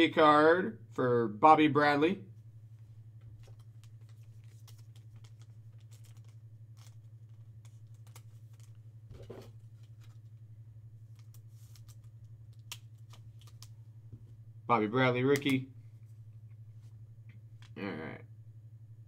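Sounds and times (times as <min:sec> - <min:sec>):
low electrical hum: 0:00.0 - 0:19.0
trading cards clicking and rustling: 0:03.2 - 0:10.4, 0:11.1 - 0:13.8, 0:15.2 - 0:15.7.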